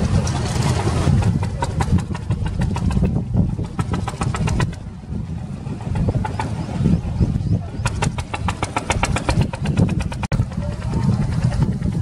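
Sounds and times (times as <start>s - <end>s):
boat engine idling: 0.0s - 12.0s
sharp clicks and knocks: 1.2s - 4.8s, 7.8s - 10.4s.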